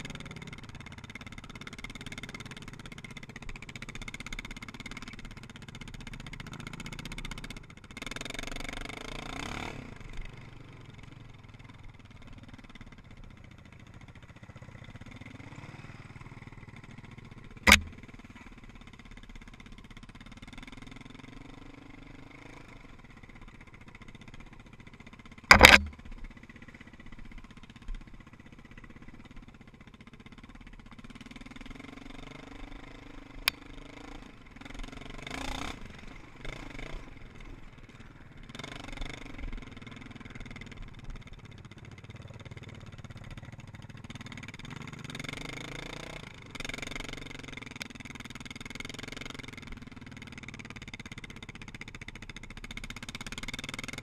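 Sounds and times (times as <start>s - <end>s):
atv engine running: 0.0s - 54.0s
loud sharp knocks: 17.7s - 18.0s, 25.5s - 26.0s.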